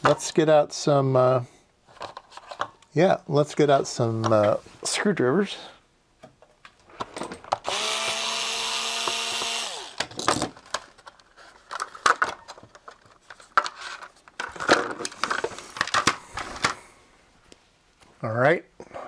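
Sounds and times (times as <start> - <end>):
electric screwdriver running: 7.6 - 10.0.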